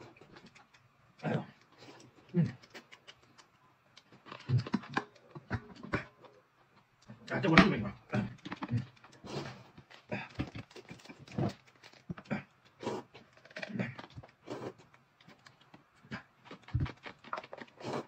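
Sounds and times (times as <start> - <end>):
noodles slurped and chewed: 8.1 - 18.0.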